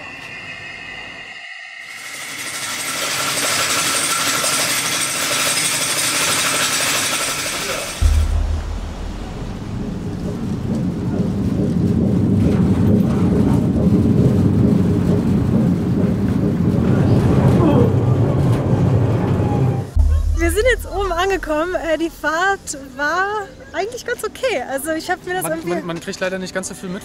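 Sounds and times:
cable car hissing rush: 0:00.0 - 0:11.2
heavy low rumble: 0:08.0 - 0:22.7.

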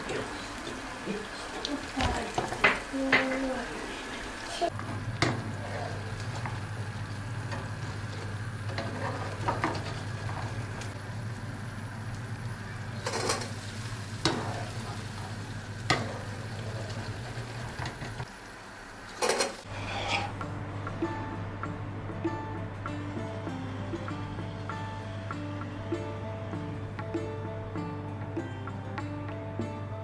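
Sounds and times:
dough frying in oil: 0:00.0 - 0:20.4
skimmer scraping and tapping pan: 0:04.6 - 0:11.0, 0:19.2 - 0:20.5.

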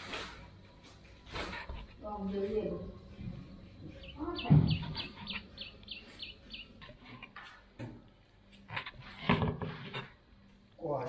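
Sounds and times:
bird chirping: 0:03.4 - 0:07.2.

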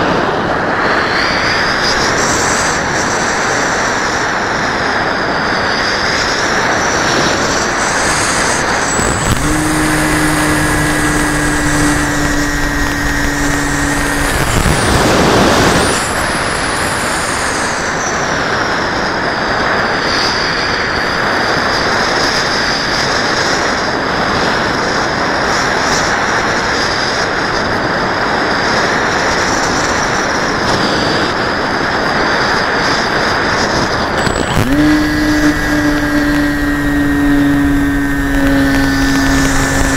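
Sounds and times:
model airplane motor whine: 0:00.0 - 0:39.9
steady low hum: 0:06.4 - 0:17.1, 0:34.2 - 0:39.9.

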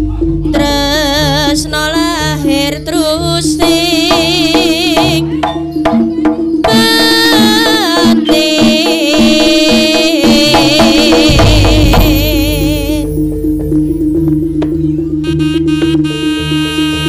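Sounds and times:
wavering melodic lead: 0:00.0 - 0:17.0
barrel drums beating: 0:03.3 - 0:16.1
low gong-like notes: 0:11.3 - 0:17.0.

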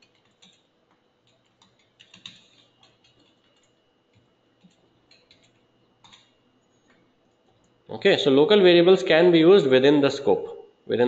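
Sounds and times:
faint keyboard typing: 0:00.0 - 0:07.8.

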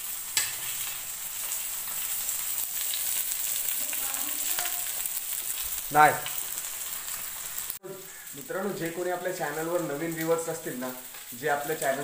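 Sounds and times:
fish sizzling in oil: 0:00.0 - 0:12.0.

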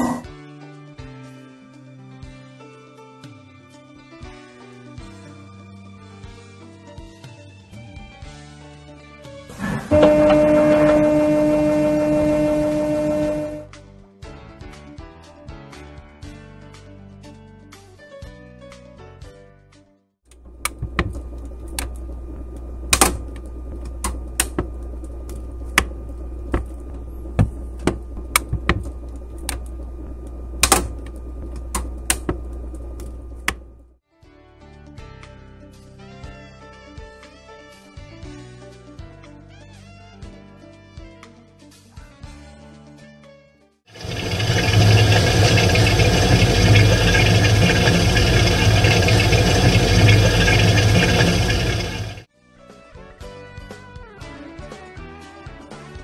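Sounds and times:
refrigerator hum: 0:09.5 - 0:13.7, 0:20.3 - 0:33.9, 0:44.0 - 0:52.2
refrigerant hissing and gurgling: 0:44.0 - 0:52.3.

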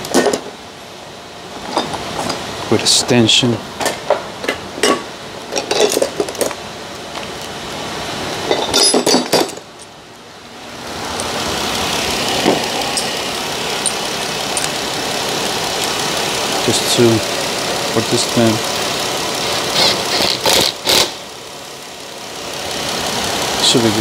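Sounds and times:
metal hand tools clinking: 0:08.4 - 0:09.9, 0:12.4 - 0:14.9
car engine running: 0:09.4 - 0:24.0.

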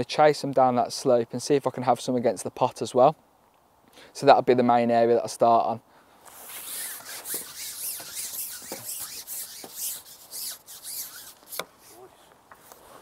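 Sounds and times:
steady hiss: 0:03.8 - 0:13.0
fishing pole handling rustle: 0:06.2 - 0:13.0.

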